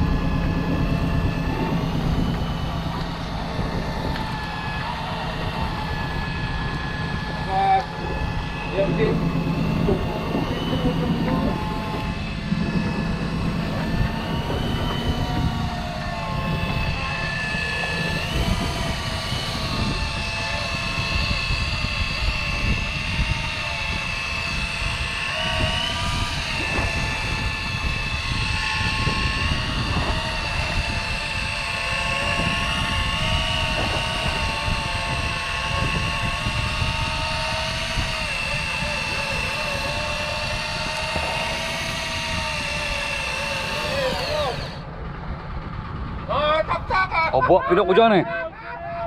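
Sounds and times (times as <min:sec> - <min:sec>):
low rumble: 0:00.0 - 0:46.9
fishing reel motor whining: 0:00.0 - 0:49.0.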